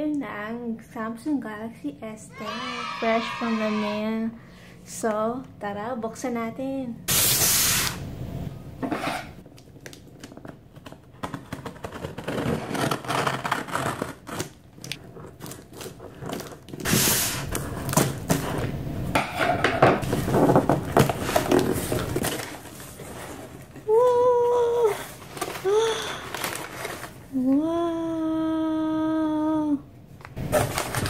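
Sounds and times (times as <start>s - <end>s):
scissors cutting packing tape: 11.6s - 18.4s
tape tearing: 30.4s - 31.0s.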